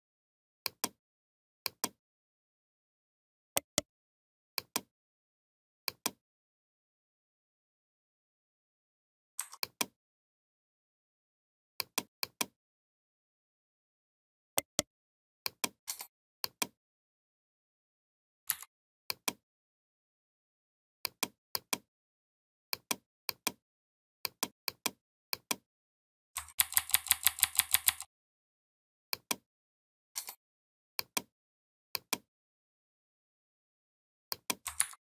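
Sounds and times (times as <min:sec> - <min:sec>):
computer mouse clicks: 0:09.4 - 0:09.9, 0:26.4 - 0:28.1, 0:30.2 - 0:30.4, 0:34.3 - 0:35.0.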